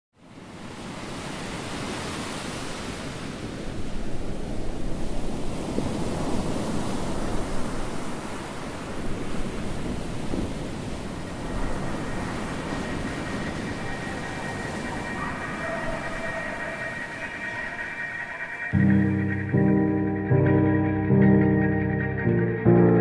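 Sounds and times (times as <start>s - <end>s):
steady rushing noise: 10.8s - 21.0s.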